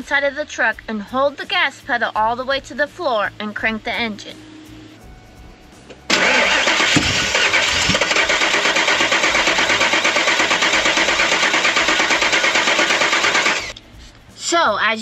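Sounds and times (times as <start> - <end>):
truck engine cranking: 6.1 - 13.8.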